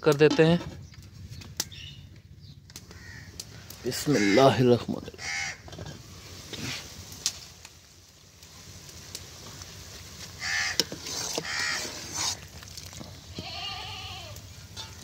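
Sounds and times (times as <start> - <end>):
goat bleating: 13.3 - 14.4.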